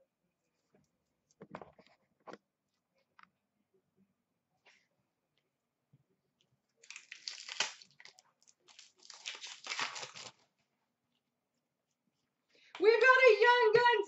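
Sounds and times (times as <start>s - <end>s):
plastic wrapper tearing and crinkling: 6.8s - 10.4s.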